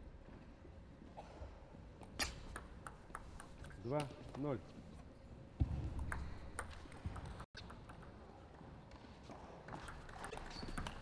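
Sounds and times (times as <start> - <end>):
table tennis ball clicking: 2.3 - 4.1, 6.0 - 8.2.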